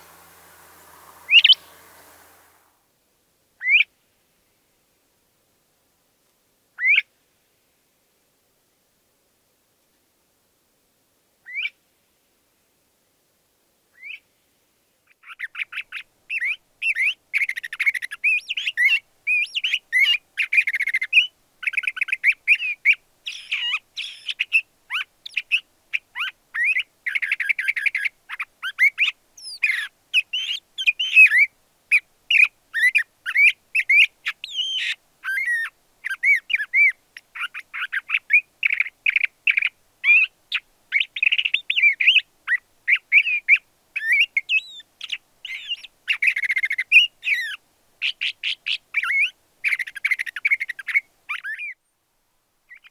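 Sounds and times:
bird singing: 0.0 - 2.6, 15.2 - 25.6, 32.3 - 40.3, 40.9 - 51.8.

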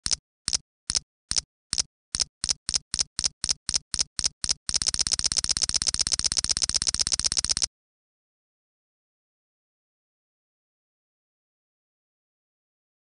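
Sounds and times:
sharp bright clicks: 0.0 - 7.7.

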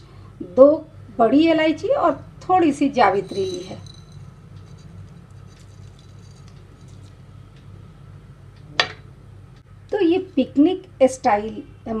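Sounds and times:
steady low hum: 0.0 - 12.0
sharp clink: 3.2 - 4.9
spices dropping into pot: 3.2 - 7.2.

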